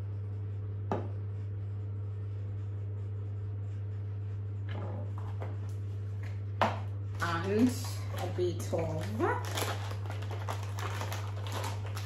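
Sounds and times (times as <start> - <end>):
steady low hum: 0.0 - 12.0
rustling of small containers: 7.2 - 12.0.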